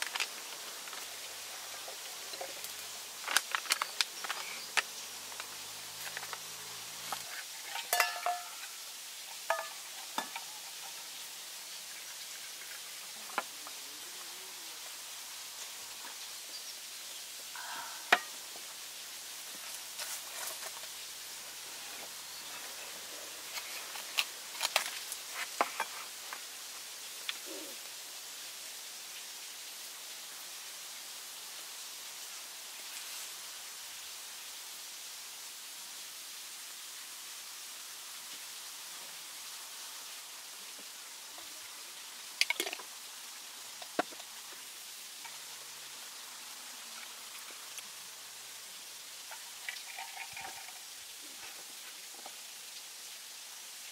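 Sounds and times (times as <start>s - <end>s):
steady hiss: 0.0s - 53.9s
foil seal crinkling: 3.2s - 4.8s
liquid pouring into metal cup: 7.5s - 8.8s, 49.3s - 50.9s
metal cup clink: 7.6s - 8.8s, 9.4s - 10.7s.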